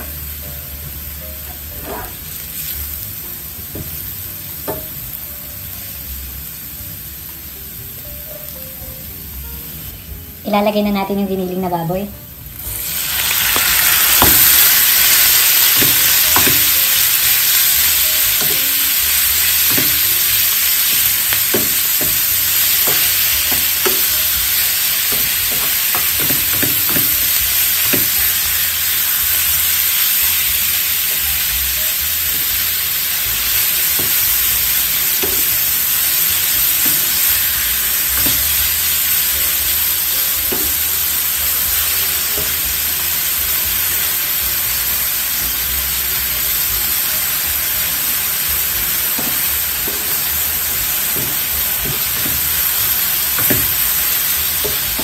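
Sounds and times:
meat sizzling in hot oil: 0.0 - 55.0
wooden spatula knocking on pan: 3.7 - 4.0, 4.6 - 5.0, 14.2 - 14.6, 15.8 - 16.8, 19.6 - 20.2, 21.4 - 24.2, 25.1 - 28.2, 33.9 - 34.4, 35.2 - 35.6, 40.4 - 40.8, 49.1 - 50.3, 51.1 - 52.7, 53.3 - 53.9.

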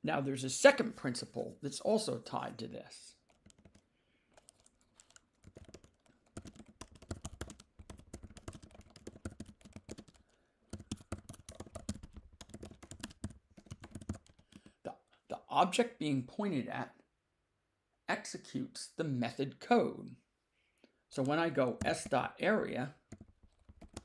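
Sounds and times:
keyboard typing: 3.2 - 14.8, 23.0 - 24.0.

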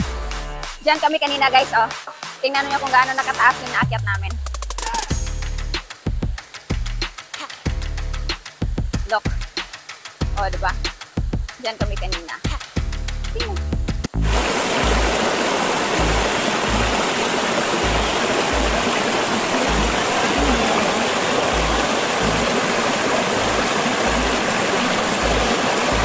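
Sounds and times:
background music beat: 0.0 - 15.2
waterfall water rushing: 14.2 - 26.0.

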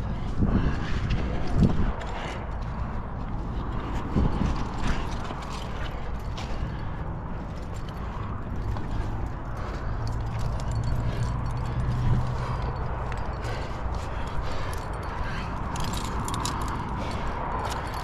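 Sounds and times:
climbing hardware jangling: 3.6 - 18.0.

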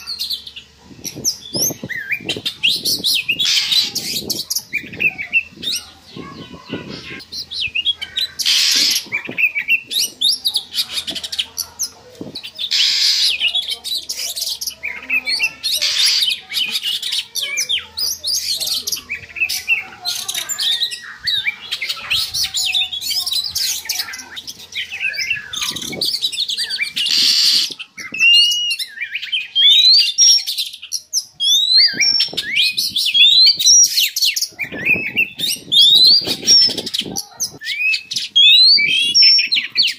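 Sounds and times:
bird song whistles and chirps: 0.0 - 11.3, 17.4 - 39.9
harsh bird call bursts: 0.0 - 11.8, 12.4 - 30.6.

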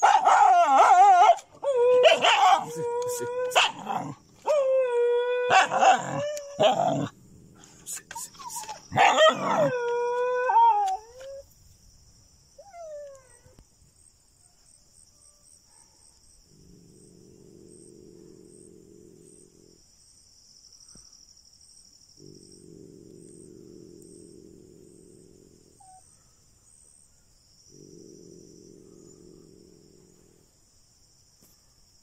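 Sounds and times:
animal wailing cry: 0.0 - 7.1, 8.3 - 11.0.

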